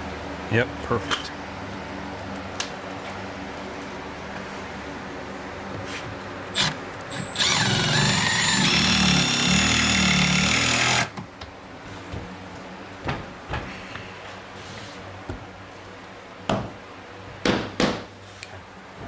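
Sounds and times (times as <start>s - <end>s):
cordless drill whining: 6.6s - 11.1s.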